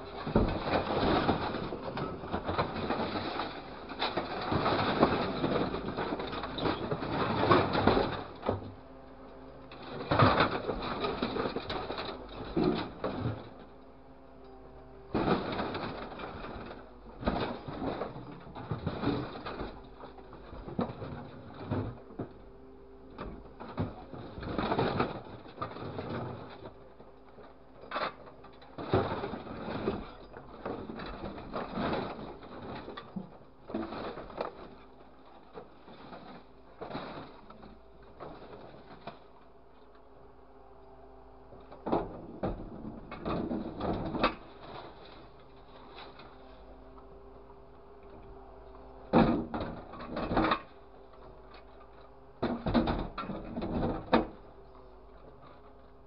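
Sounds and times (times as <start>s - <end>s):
scrap metal rattling and crunching: 0.0s - 8.8s, 9.4s - 13.9s, 15.0s - 22.5s, 23.2s - 39.7s, 41.8s - 46.8s, 49.0s - 55.8s
engine and hydraulics hum: 0.0s - 56.0s.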